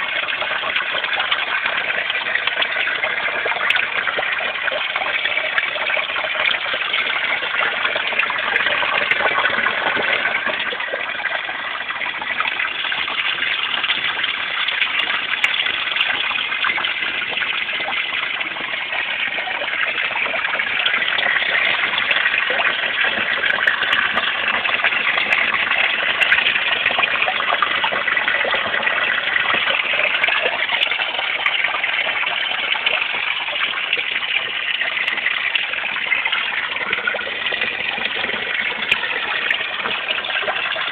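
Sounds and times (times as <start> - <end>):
water pouring into pond: 0.0 - 40.9.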